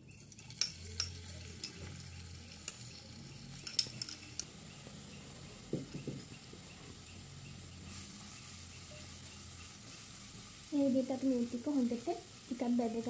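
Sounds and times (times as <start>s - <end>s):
oil sizzling: 0.0s - 13.0s
metal spoon clinking on glass dish: 0.1s - 1.9s, 3.6s - 4.5s.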